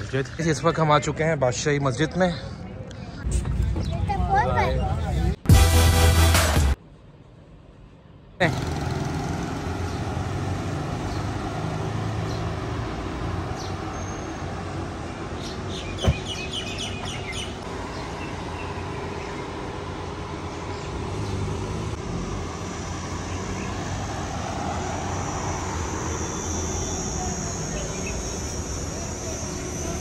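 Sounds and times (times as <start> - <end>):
birds chirping: 0.0 - 5.4, 8.4 - 30.0
distant traffic rumble: 6.8 - 30.0
high-pitched whine: 21.9 - 30.0.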